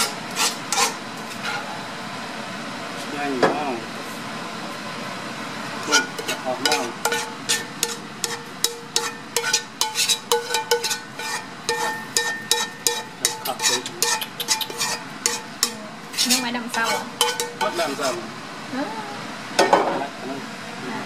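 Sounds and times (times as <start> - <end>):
utensil scraping and tapping a wok: 0.0 - 1.6, 5.8 - 18.2.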